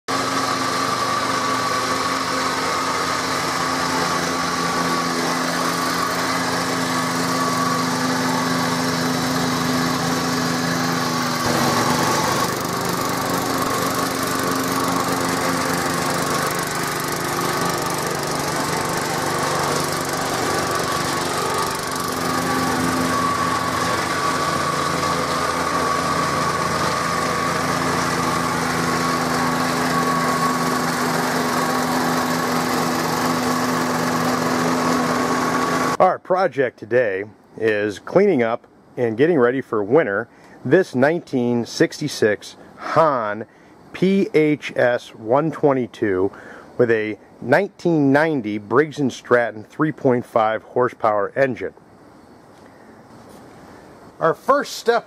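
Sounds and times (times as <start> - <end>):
lawn mower engine running: 0.0 - 36.5, 52.5 - 55.0.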